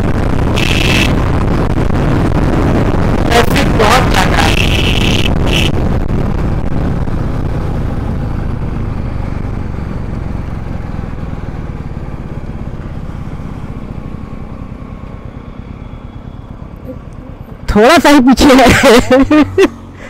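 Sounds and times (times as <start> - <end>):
wind noise: 0.0 - 14.4
motorcycle engine running: 0.0 - 20.0.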